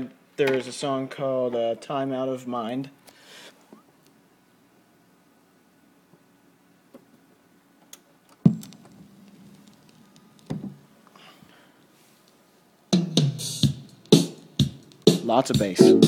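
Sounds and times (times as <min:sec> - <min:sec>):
stylus thump on record: 0:08.4 - 0:09.0
vinyl surface noise: 0:08.5 - 0:11.1
music with drum hits: 0:13.0 - 0:16.0.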